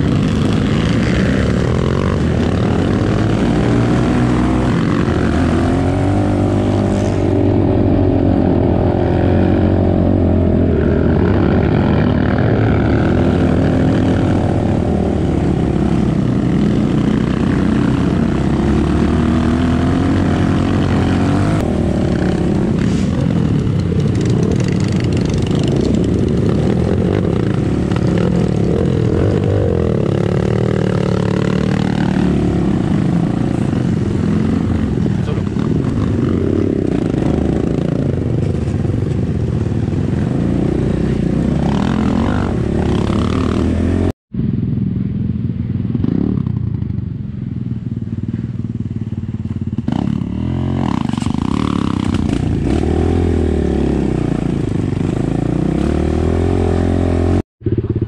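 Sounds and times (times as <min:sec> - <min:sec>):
dirt bike engine revving: 0:00.0 - 0:44.1, 0:49.8 - 0:58.0.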